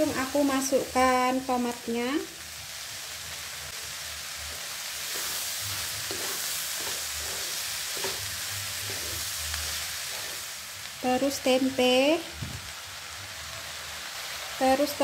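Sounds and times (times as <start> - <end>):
vegetables sizzling in hot oil: 0.0 - 15.0
wooden spatula scraping wok: 4.5 - 10.6.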